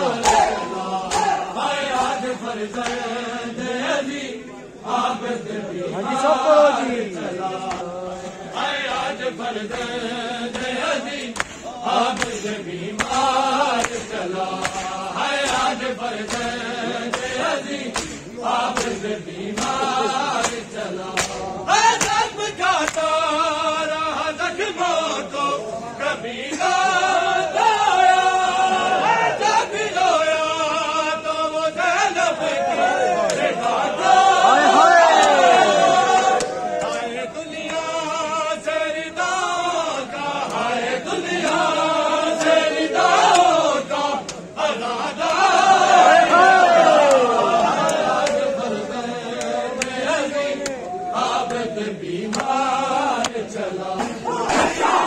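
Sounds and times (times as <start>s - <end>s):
men chanting in chorus: 0.0s - 55.0s
hands slapping chests: 0.1s - 3.1s, 7.6s - 8.4s, 9.7s - 23.1s, 33.2s - 33.5s, 36.1s - 37.9s, 44.2s - 44.5s, 46.9s - 48.5s, 49.4s - 50.0s, 50.6s - 51.7s, 52.3s - 55.0s.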